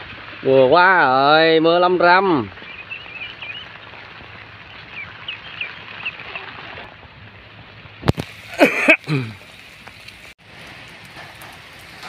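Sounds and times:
light drizzle hissing: 0.0 - 12.0
young ducks peeping: 2.6 - 6.8.

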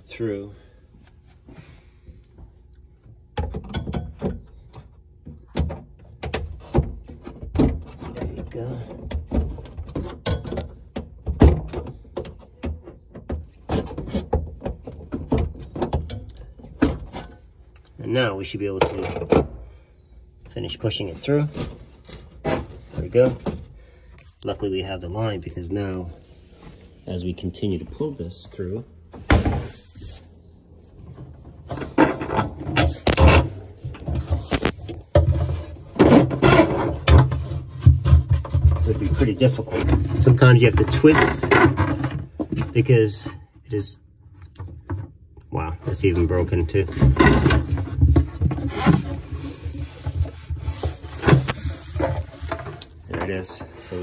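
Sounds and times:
plastic hoses scraping against cabinet: 31.1 - 43.4, 45.6 - 54.0.

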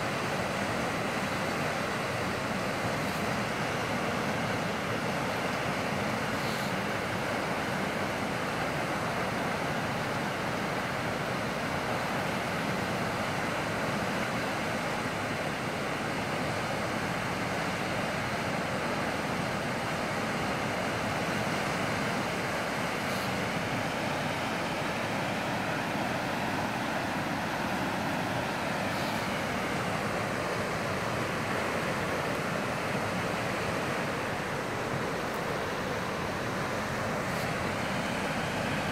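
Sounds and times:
floodwater rushing in creek: 0.0 - 38.9.

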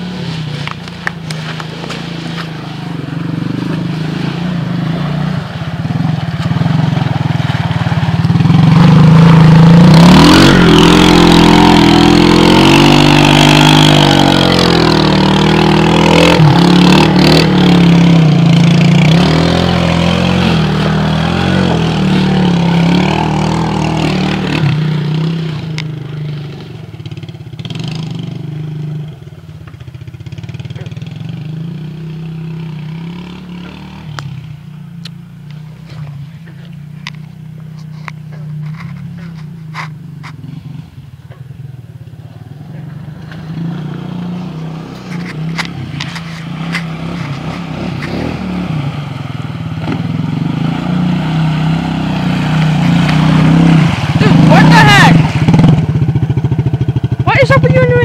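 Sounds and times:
tires splashing through water: 0.0 - 58.0
engine revving hard: 8.2 - 26.5, 43.2 - 58.0.

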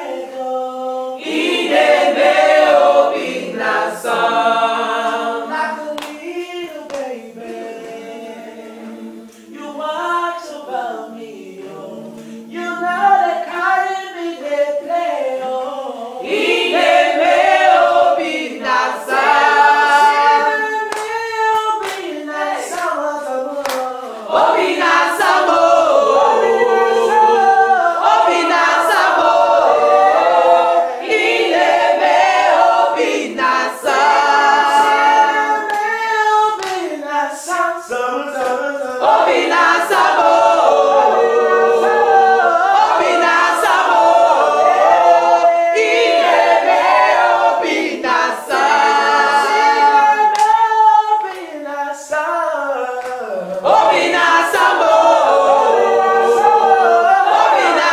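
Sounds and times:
group singing a cappella: 0.0 - 57.9
hand claps: 5.9 - 7.2, 20.9 - 25.4, 35.6 - 37.0, 38.4 - 40.1, 50.3 - 51.6, 53.0 - 54.8.

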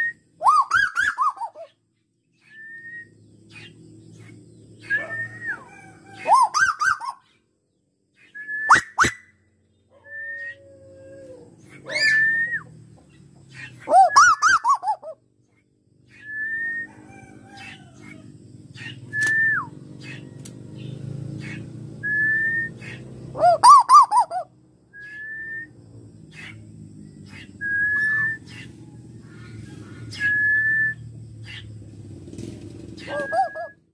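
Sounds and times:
bird whistled notes: 0.0 - 1.7, 2.4 - 3.8, 4.8 - 7.3, 8.2 - 9.4, 11.8 - 12.8, 13.6 - 15.1, 16.1 - 17.0, 18.8 - 20.2, 21.4 - 25.8, 27.3 - 28.7, 30.1 - 31.6, 33.0 - 33.9
bird rapid up-and-down notes: 13.6 - 15.2, 22.6 - 24.4, 32.8 - 33.8.

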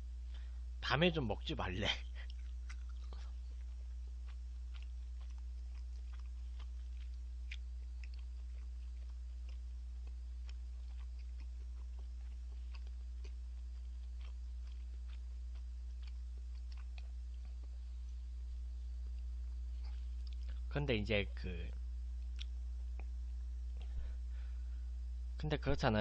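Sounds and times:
low electrical hum: 0.0 - 26.0
wet mouth clicks and smacks: 19.8 - 20.6, 22.2 - 23.1.

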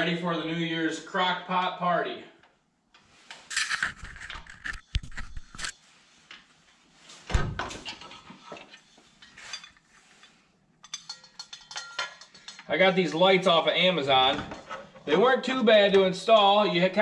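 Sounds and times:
metal lamp shade rattling: 10.8 - 12.6.

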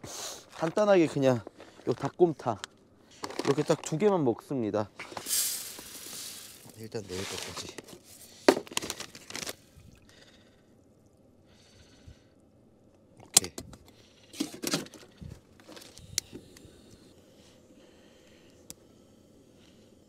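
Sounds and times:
plastic pouch rustling: 5.1 - 9.7.

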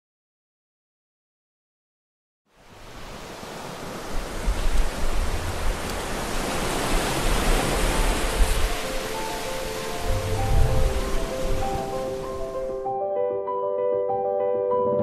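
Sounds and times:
surf breaking on beach: 2.6 - 12.8
low uneven rumble: 10.0 - 12.5.

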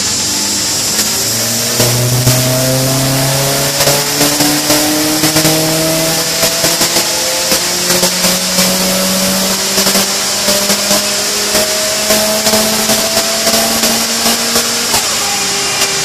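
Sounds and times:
car engine revving hard: 0.0 - 16.0
exhaust crackles: 0.0 - 16.0
turbo whine and hiss: 0.0 - 16.0.

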